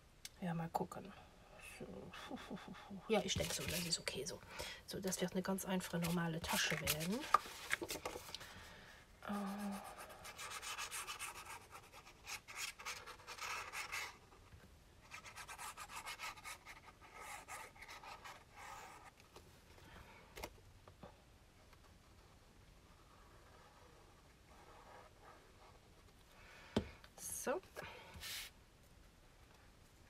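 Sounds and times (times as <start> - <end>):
cardstock rubbing and sliding: 3.2 - 4.0.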